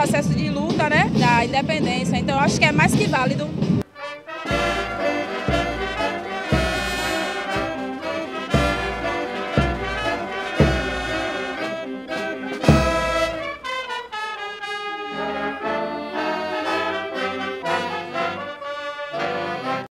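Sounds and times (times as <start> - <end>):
marching brass band playing: 3.8 - 19.9
heavy bass drum strikes: 4.5 - 11.7, 12.6 - 13.6.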